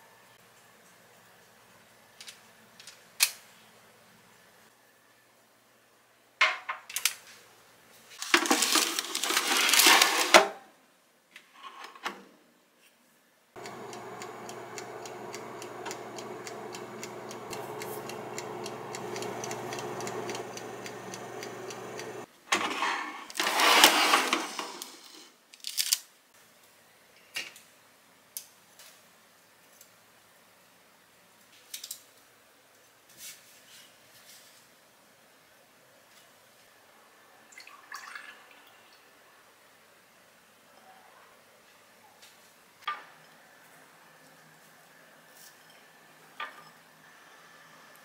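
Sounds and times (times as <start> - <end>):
air fryer motor and fan hum: 13.6 - 22.3
clicks: 13.6 - 22.3.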